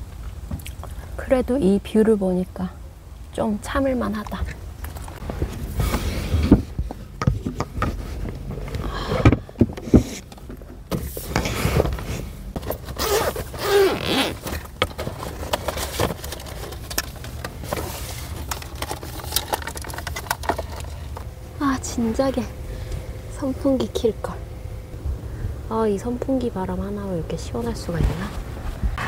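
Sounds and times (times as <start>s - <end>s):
low steady rumble: 0.0s - 29.0s
rustling and clicking handling noise: 4.3s - 21.3s.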